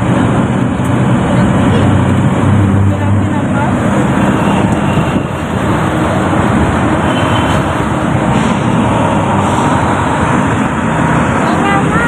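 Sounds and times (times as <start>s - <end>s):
street traffic: 0.0s - 12.0s
vehicle engine and road noise: 0.0s - 12.0s.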